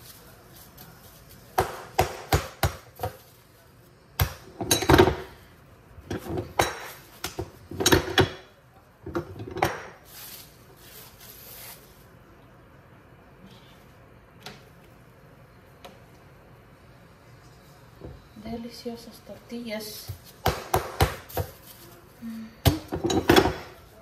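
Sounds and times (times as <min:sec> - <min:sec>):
hands slapping tortilla dough: 0:20.1 - 0:21.7.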